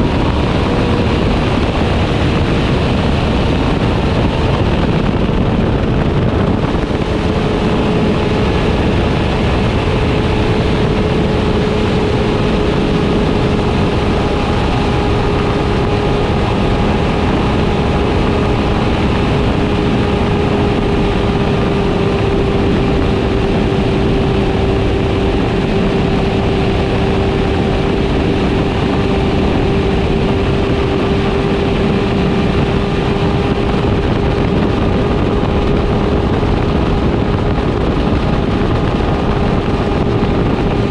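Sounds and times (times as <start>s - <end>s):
motorcycle engine cruising: 0.0s - 40.9s
wind rushing over microphone: 0.0s - 40.9s.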